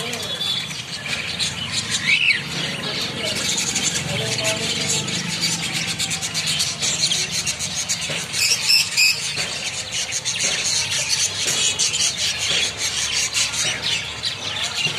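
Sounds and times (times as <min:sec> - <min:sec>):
finches chirping: 0:00.0 - 0:14.9.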